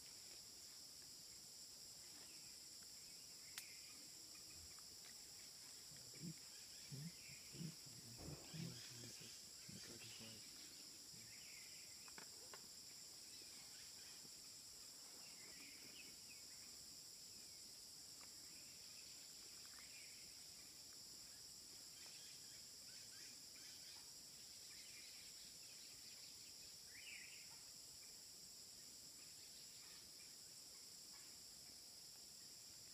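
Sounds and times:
insects droning: 0.0s - 32.9s
faint chirps: 2.0s - 17.7s.

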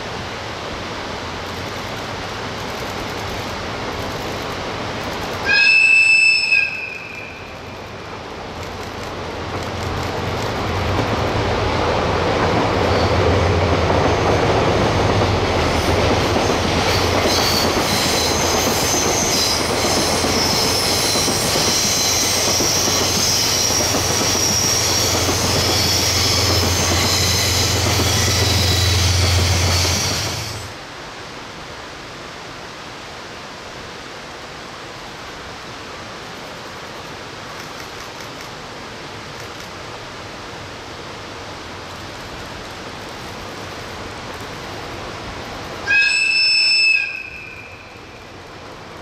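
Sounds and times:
diesel train engine drone: 0.0s - 49.0s
rail noise: 0.0s - 49.0s
train horn toot: 5.4s - 7.6s, 45.8s - 48.0s
high wheel squeal: 5.5s - 7.5s, 16.5s - 30.7s, 45.8s - 48.1s.

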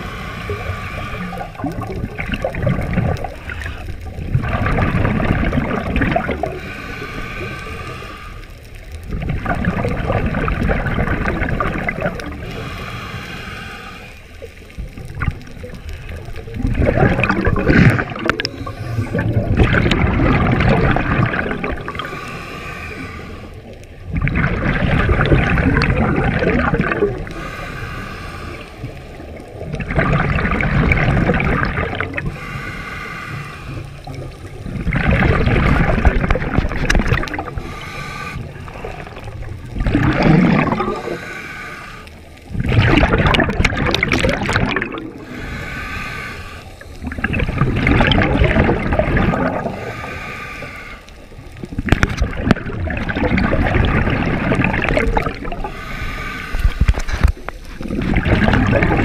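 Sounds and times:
diver inhaling through regulator: 0.0s - 1.7s, 6.3s - 8.7s, 12.3s - 14.6s, 17.0s - 19.6s, 21.3s - 23.9s, 27.2s - 29.3s, 31.5s - 34.6s, 35.4s - 42.6s, 44.7s - 47.6s, 49.2s - 51.5s, 55.1s - 58.0s
exhaled bubbles rushing: 0.0s - 8.1s, 8.8s - 12.8s, 14.4s - 22.2s, 23.6s - 27.6s, 28.4s - 32.5s, 33.7s - 41.4s, 42.4s - 45.7s, 46.7s - 59.0s.

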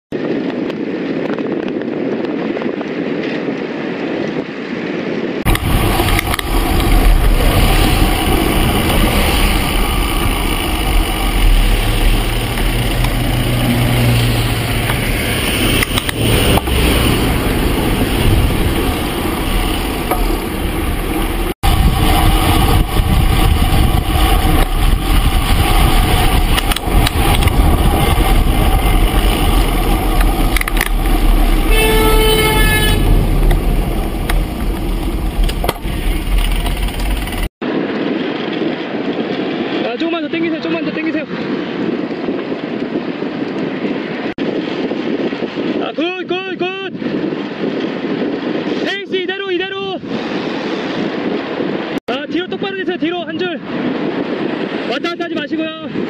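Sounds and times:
wind rushing over microphone: 0.1s - 56.0s
road and traffic noise: 5.4s - 37.8s.

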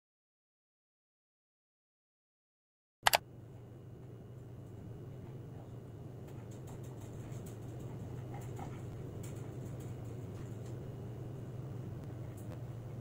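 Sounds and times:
steady low hum: 3.1s - 13.0s.

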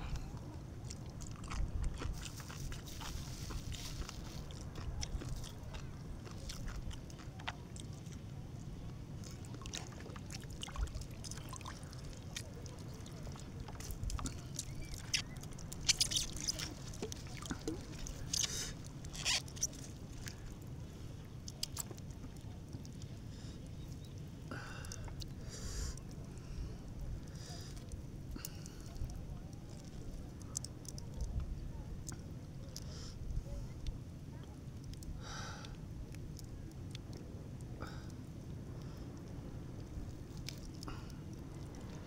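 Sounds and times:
steady low rumble: 0.0s - 42.0s
raw fish torn by hand: 13.8s - 20.4s.

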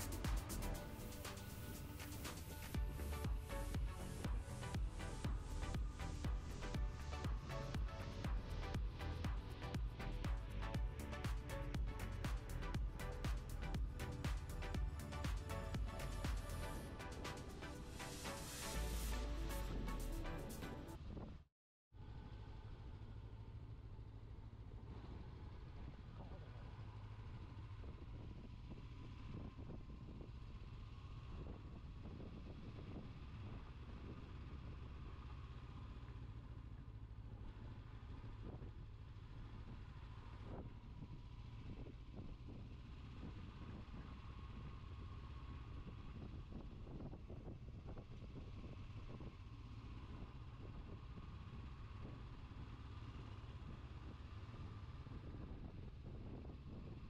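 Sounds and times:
motorcycle engine running: 0.0s - 21.4s, 22.0s - 57.0s
wind rumble on microphone: 21.0s - 21.4s, 27.4s - 34.8s, 38.3s - 38.8s, 39.6s - 49.4s, 53.6s - 57.0s.

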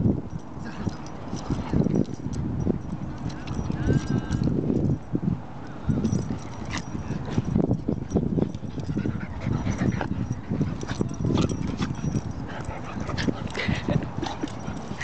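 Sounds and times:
dog vocal sounds: 8.9s - 15.0s.

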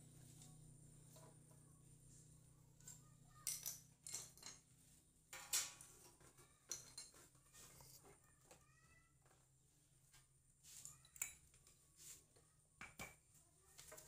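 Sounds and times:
metal objects clinking: 3.3s - 4.7s, 5.3s - 8.2s.

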